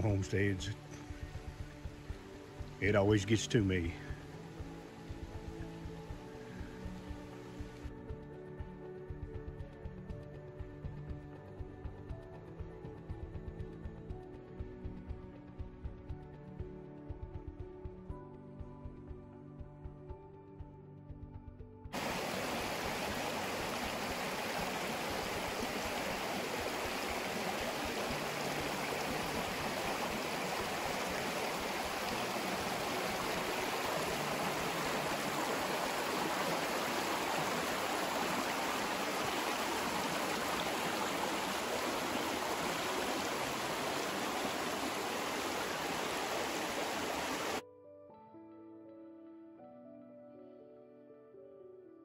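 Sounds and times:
creek water rushing over rocks: 0.0s - 7.8s, 22.0s - 47.6s.

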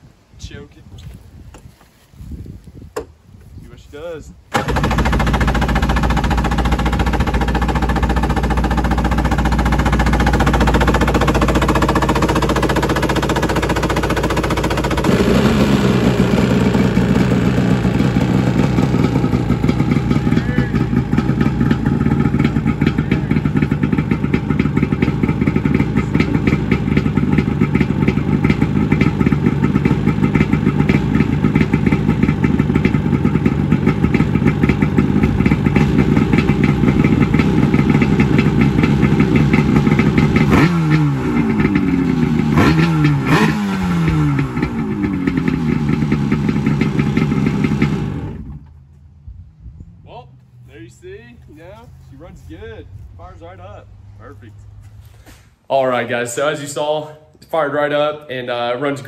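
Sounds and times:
jet ski engine running and revving: 4.6s - 48.5s.

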